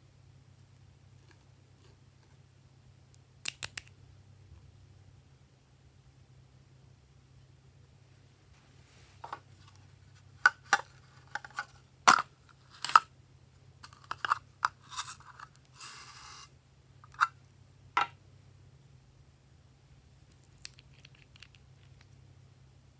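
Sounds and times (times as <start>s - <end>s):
rustling scrape: 8.5s - 10.1s, 13.8s - 16.6s
toy box clicks and crinkles: 10.5s - 13.1s, 13.8s - 15.6s.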